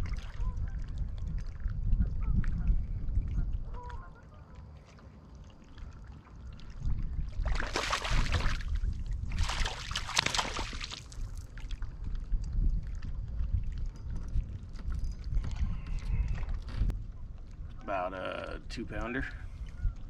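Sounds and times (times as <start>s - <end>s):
fish splashing in water: 7.3s - 11.8s.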